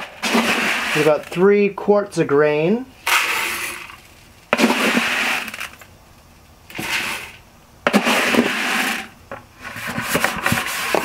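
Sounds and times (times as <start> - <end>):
grain poured into hopper: 0.0 - 1.5, 3.0 - 5.8, 6.7 - 9.2.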